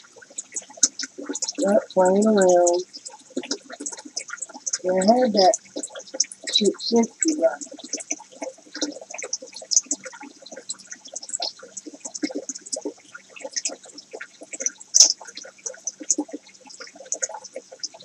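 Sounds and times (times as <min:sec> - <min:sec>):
water bubbling and gurgling: 0:00.0 - 0:18.0.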